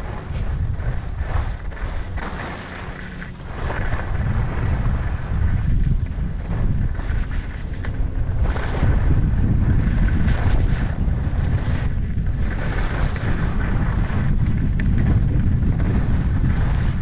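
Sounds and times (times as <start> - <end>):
skis scraping snow: 0.0 - 17.0
wind buffeting microphone: 0.0 - 17.0.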